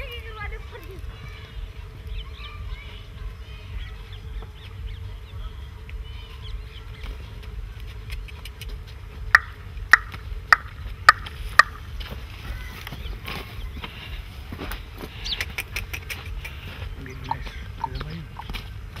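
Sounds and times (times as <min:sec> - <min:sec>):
sharp clicks: 0:07.8 - 0:11.8
faint bird calls: 0:08.1 - 0:19.0.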